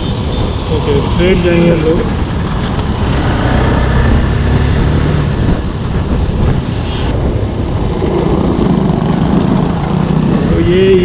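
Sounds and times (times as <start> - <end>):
wind rushing over microphone: 0.0 - 11.0
motorcycle engine running: 7.4 - 10.9.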